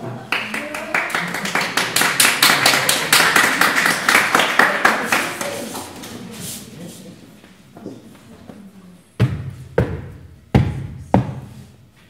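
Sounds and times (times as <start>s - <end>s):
audience applauding: 0.2s - 5.9s.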